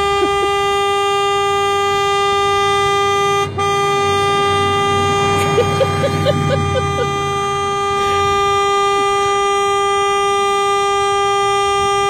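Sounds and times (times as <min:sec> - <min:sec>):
car horn blaring: 0:00.0 - 0:12.0.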